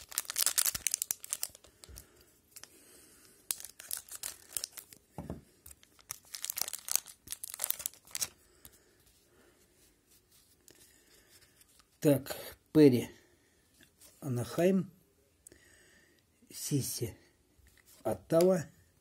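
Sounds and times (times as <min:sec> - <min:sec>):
foil wrapper tearing and crinkling: 0:00.0 - 0:02.0, 0:03.5 - 0:05.0, 0:05.8 - 0:08.4.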